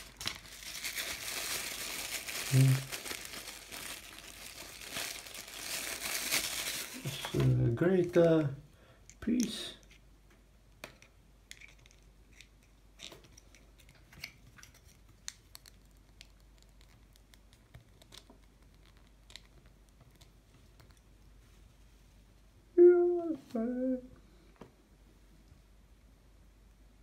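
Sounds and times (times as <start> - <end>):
person exclaiming: 22.8 - 24.1.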